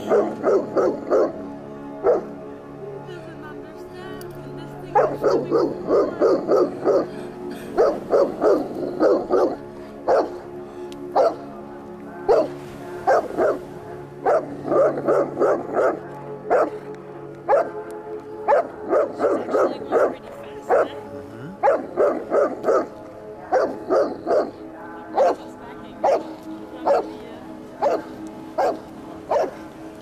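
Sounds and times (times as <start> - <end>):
dog barking angrily: 7.8 - 10.4, 21.6 - 22.9, 28.6 - 29.6.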